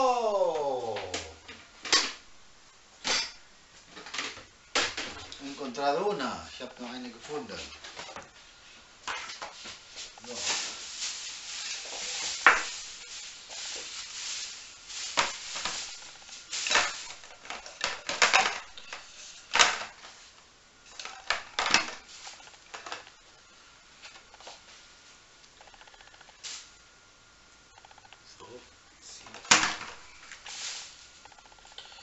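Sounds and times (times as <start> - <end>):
plastic bag rustling: 5.0 - 23.2, 29.2 - 31.4.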